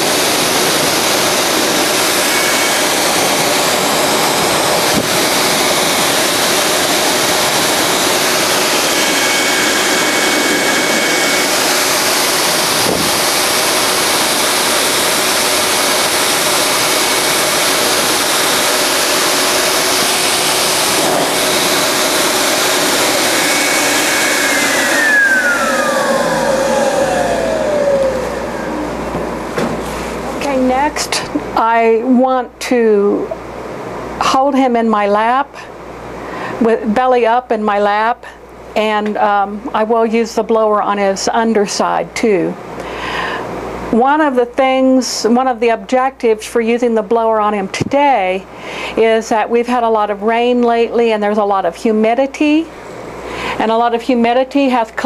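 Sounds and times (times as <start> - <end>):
blower whining: 0.0 - 34.2, 52.7 - 53.8.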